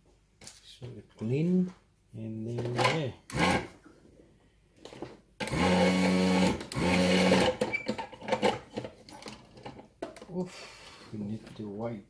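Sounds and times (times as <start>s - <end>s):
vacuum pump humming: 5.4s - 7.6s.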